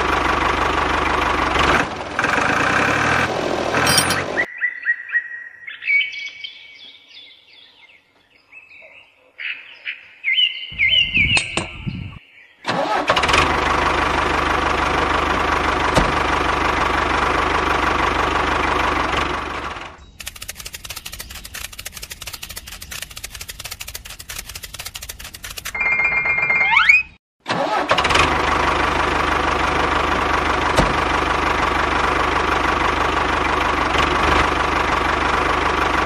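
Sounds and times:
engine starting and running: 0:00.0 - 0:04.5, 0:12.6 - 0:36.0
birds chirping: 0:04.1 - 0:12.7, 0:20.0 - 0:25.7
fast even ticking: 0:20.2 - 0:25.8.

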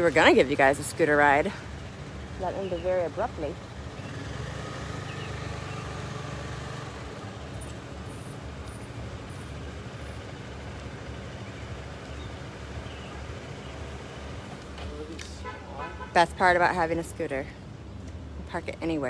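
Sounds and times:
vehicle engine running: 0:00.0 - 0:14.8
road rumble: 0:00.0 - 0:19.0.

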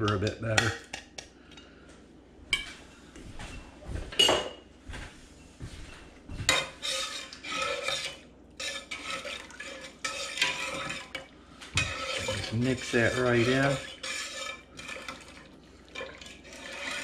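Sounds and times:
spoon stirring thick beans: 0:00.0 - 0:01.6, 0:05.9 - 0:17.0
metal spoon clanking on pot: 0:06.5 - 0:15.3.

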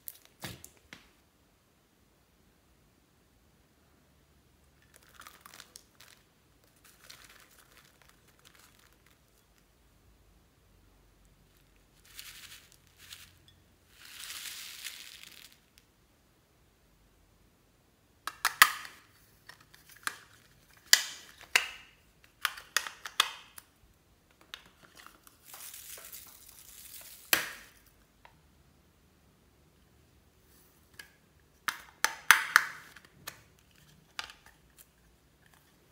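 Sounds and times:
foam beads poured into bowl: 0:04.8 - 0:09.6, 0:11.5 - 0:15.8, 0:25.3 - 0:27.8
plastic containers clicking and crinkling: 0:18.3 - 0:23.7, 0:24.3 - 0:27.9, 0:30.9 - 0:35.9.

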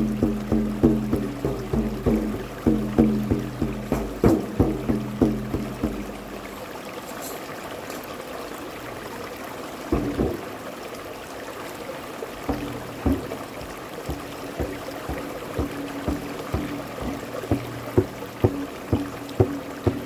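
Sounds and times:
frame drum struck by hand: 0:00.0 - 0:06.5, 0:09.9 - 0:10.5, 0:12.5 - 0:20.0
stream running over rocks: 0:00.0 - 0:20.0.

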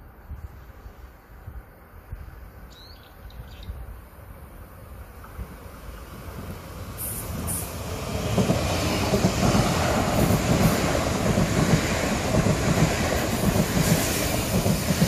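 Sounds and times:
train passing on rails: 0:00.0 - 0:15.0
low pulsing of wheels on track: 0:03.7 - 0:15.0.

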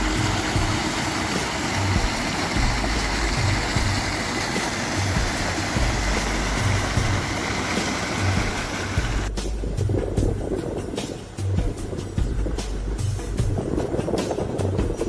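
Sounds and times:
fountain water splashing into pool: 0:00.0 - 0:09.3
low rumble of road traffic: 0:00.0 - 0:15.0.

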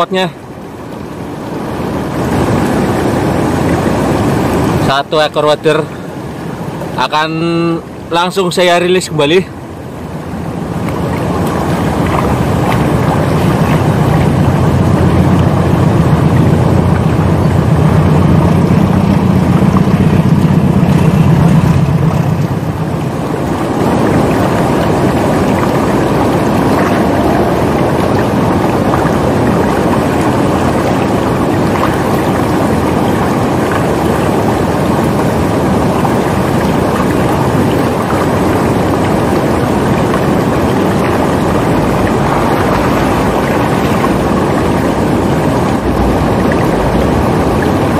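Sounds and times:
river rushing over stones: 0:00.0 - 0:47.9
deep rumble: 0:10.6 - 0:47.9.

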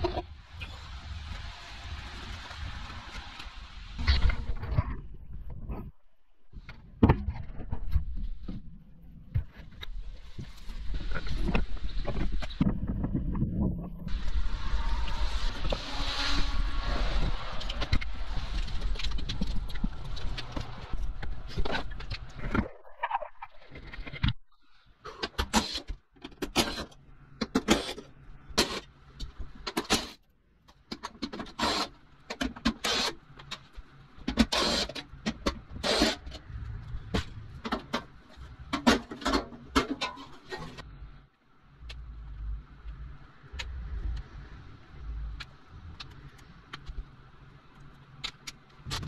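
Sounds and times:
wind rumbling on microphone: 0:00.0 - 0:24.5, 0:35.5 - 0:38.8, 0:41.8 - 0:49.0
microphone handling noise: 0:06.6 - 0:14.4.

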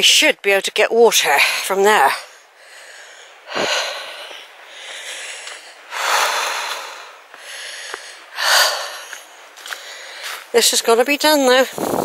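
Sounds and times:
person breathing heavily: 0:02.2 - 0:10.5.

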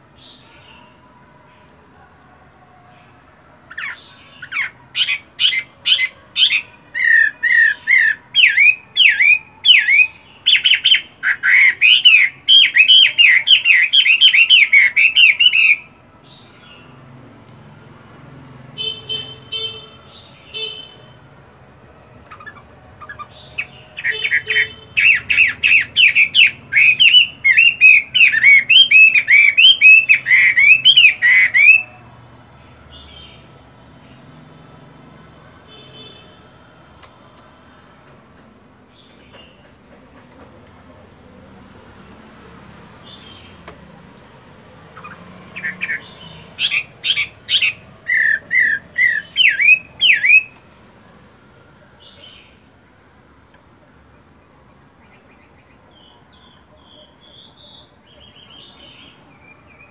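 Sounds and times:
bird singing whistled notes: 0:04.4 - 0:15.9, 0:22.3 - 0:32.0, 0:44.9 - 0:50.6.

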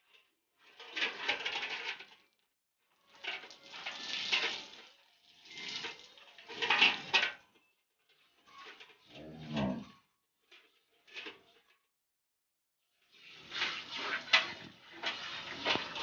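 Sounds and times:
milk squirting into steel bucket: 0:03.1 - 0:07.3.

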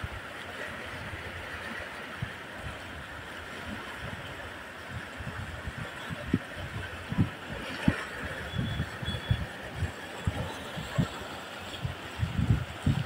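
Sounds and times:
floodwater rushing and splashing: 0:00.0 - 0:13.0
wind buffeting microphone: 0:03.7 - 0:13.0.

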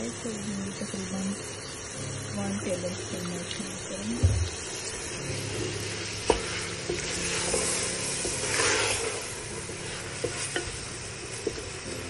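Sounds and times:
food sizzling in a frying pan: 0:00.0 - 0:12.0
wooden spatula stirring: 0:04.3 - 0:11.8.

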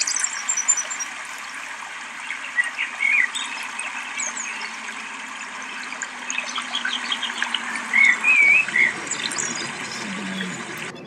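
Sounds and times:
small birds chirping and whistling: 0:00.0 - 0:11.0
steady outdoor hiss: 0:00.0 - 0:11.0.

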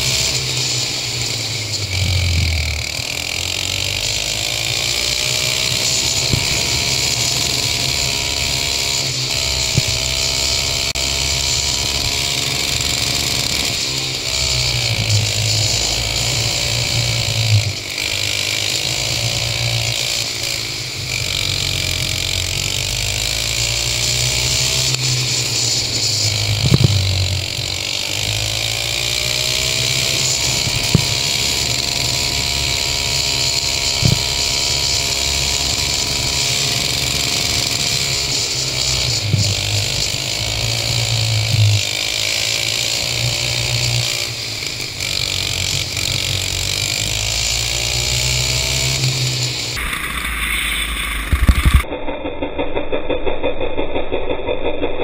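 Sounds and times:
go-kart engine revving: 0:00.0 - 0:54.9
sharp knocks: 0:09.6 - 0:10.5, 0:29.8 - 0:34.8.

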